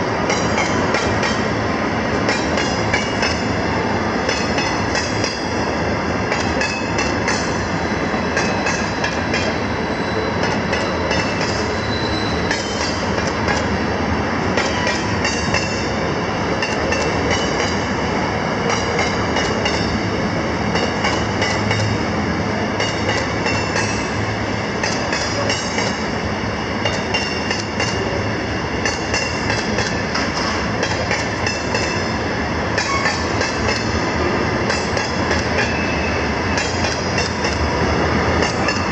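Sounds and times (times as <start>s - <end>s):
train wheels rumbling on rail: 0.0s - 38.9s
high-pitched wheel squeal: 11.7s - 12.5s.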